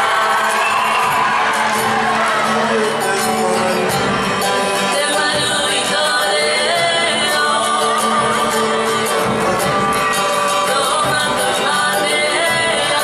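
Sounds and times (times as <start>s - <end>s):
people singing: 0.0s - 13.0s
strummed guitar and ukulele: 0.0s - 13.0s.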